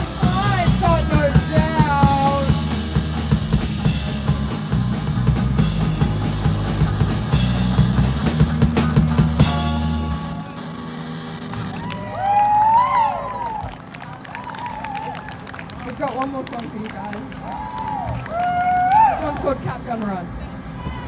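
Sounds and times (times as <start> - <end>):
rock band playing: 0.0 - 20.2
guitar chord ringing: 8.4 - 11.8.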